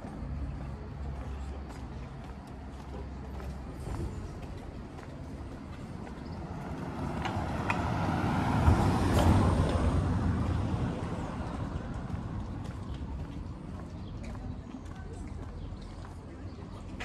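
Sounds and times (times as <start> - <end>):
car passing by: 5.8 - 12.9.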